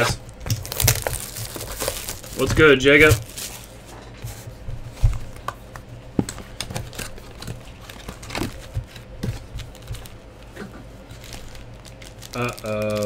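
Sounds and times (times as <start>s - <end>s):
foil card pack crinkling: 0.5s - 3.8s, 6.7s - 13.0s.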